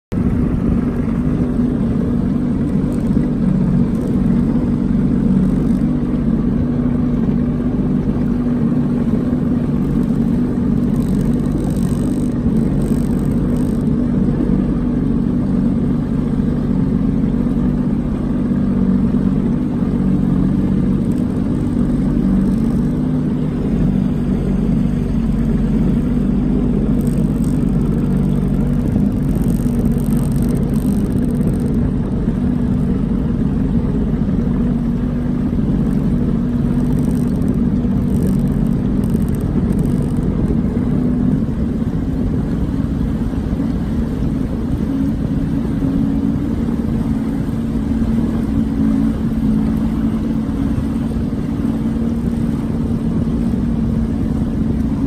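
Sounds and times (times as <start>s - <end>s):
boat engine running: 0.0s - 55.0s.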